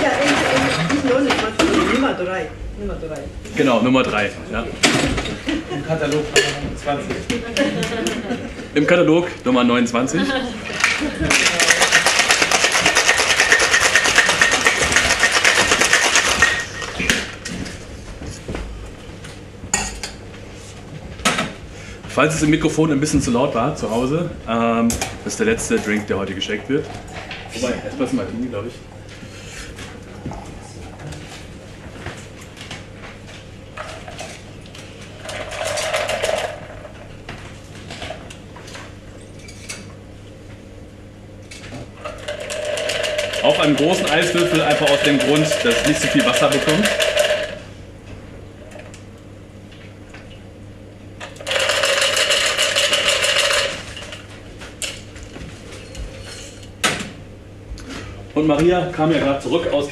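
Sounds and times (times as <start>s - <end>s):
ice rattling in cocktail shaker: 11.3s - 17.0s, 42.2s - 47.6s, 51.4s - 54.0s.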